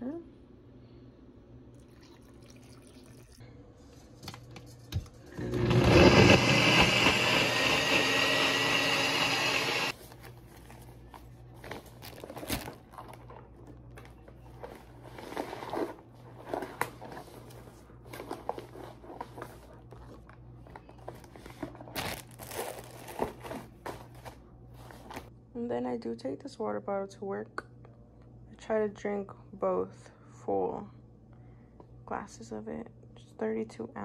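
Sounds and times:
blender running: 0:05.3 - 0:10.0
plastic bag crinkling: 0:10.0 - 0:25.3.

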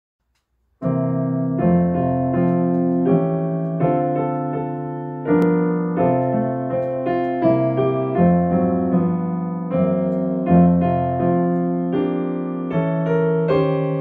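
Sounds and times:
digital piano playing chords: 0:00.8 - 0:14.0.

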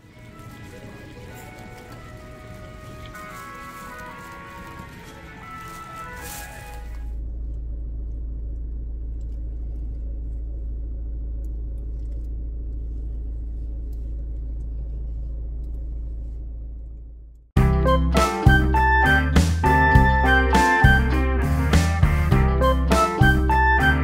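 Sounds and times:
background music: 0:00.0 - 0:07.1, 0:17.6 - 0:24.0
car interior rumble: 0:00.0 - 0:24.0.

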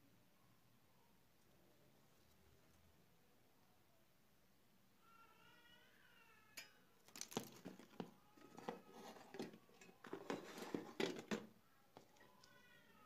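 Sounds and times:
parts clattering on a bench: 0:06.6 - 0:12.3.

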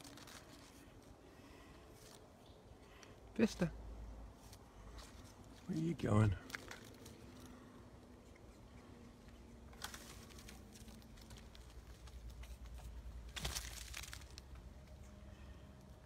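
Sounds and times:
rustling of leaves: 0:00.0 - 0:03.6, 0:09.3 - 0:15.9
possum scratching and clicking: 0:06.4 - 0:13.3.

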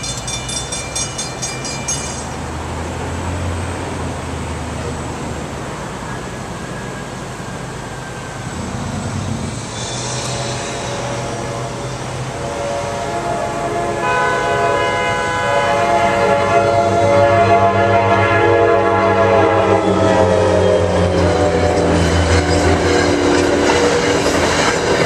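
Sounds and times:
train rumble: 0:00.0 - 0:25.0
train horn chord: 0:09.8 - 0:22.4.

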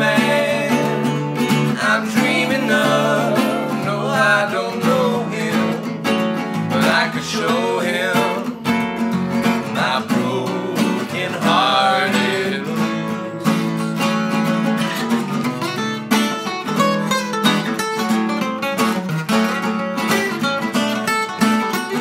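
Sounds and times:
people singing: 0:00.0 - 0:13.9
acoustic guitars strummed and picked: 0:00.0 - 0:22.0.

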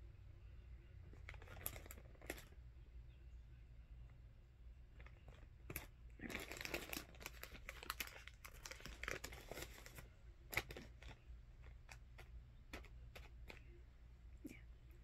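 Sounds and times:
plastic candy bag crinkling: 0:01.1 - 0:02.6, 0:04.9 - 0:13.7.

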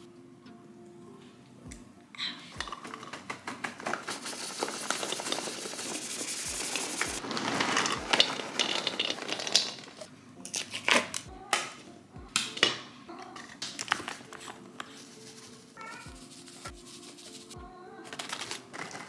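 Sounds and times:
kibble pouring into bowls: 0:02.6 - 0:10.1, 0:18.1 - 0:19.0
plastic bag crinkling: 0:03.8 - 0:11.1, 0:18.1 - 0:19.0.

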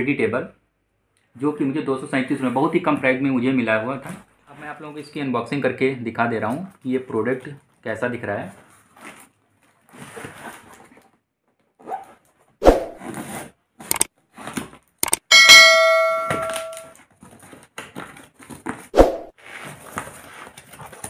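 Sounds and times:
click: 0:15.0 - 0:15.2
sharp thumps: 0:15.0 - 0:16.9
bell ding: 0:15.3 - 0:16.9
cardboard parcel rustling: 0:17.0 - 0:21.0.

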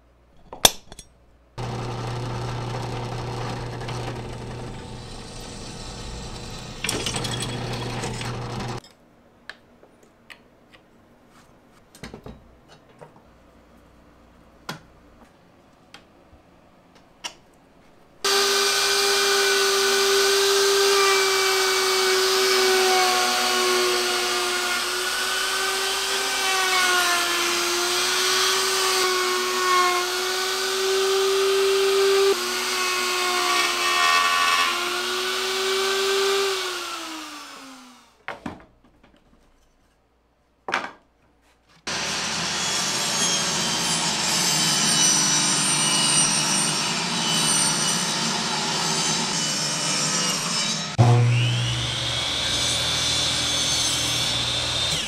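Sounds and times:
power tool running: 0:01.6 - 0:08.8, 0:18.3 - 0:38.1, 0:41.9 - 0:45.6, 0:50.9 - 0:55.0
router cutting plywood: 0:01.6 - 0:08.8, 0:18.3 - 0:38.1, 0:41.9 - 0:55.0.

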